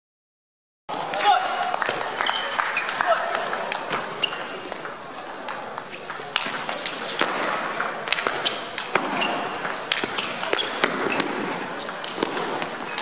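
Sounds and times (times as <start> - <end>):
background chatter: 0.9 - 13.0
table tennis ball clicking: 3.3 - 10.7.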